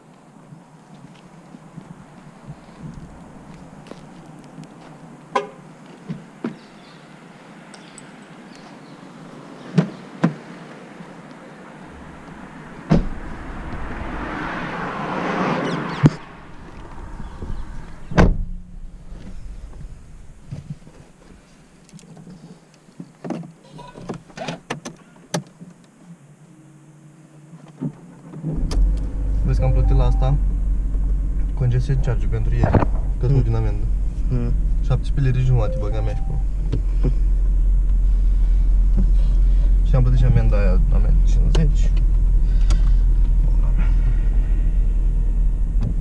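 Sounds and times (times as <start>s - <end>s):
street background: 0.0s - 46.0s
short pitched sound: 29.4s - 30.5s, 33.9s - 36.7s.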